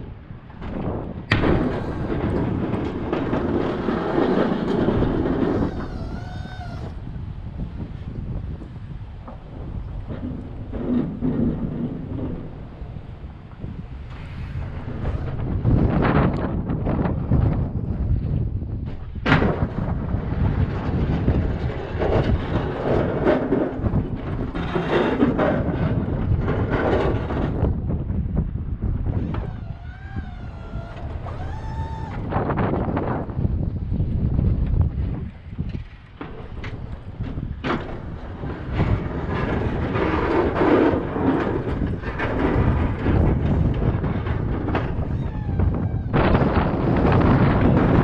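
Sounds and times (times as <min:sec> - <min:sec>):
wind buffeting microphone: 0:00.0 - 0:48.0
plow scraping pavement: 0:00.4 - 0:27.8, 0:29.0 - 0:48.0
plow blade banging down: 0:29.2 - 0:33.0.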